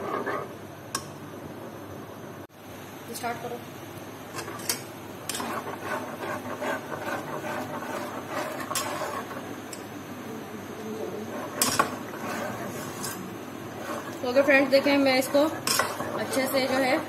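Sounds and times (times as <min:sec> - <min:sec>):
ladle scraping batter in pot: 0:05.3 - 0:09.8, 0:11.2 - 0:17.0.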